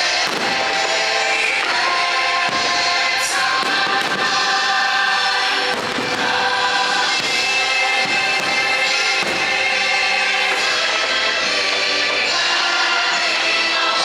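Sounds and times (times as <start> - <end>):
fireworks bangs: 0.0 - 12.4
choir singing: 0.0 - 14.0.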